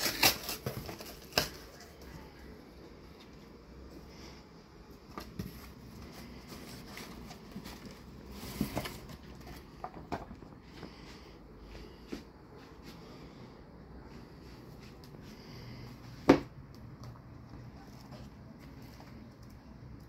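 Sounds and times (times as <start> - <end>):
book rustling: 4.9 - 12.1.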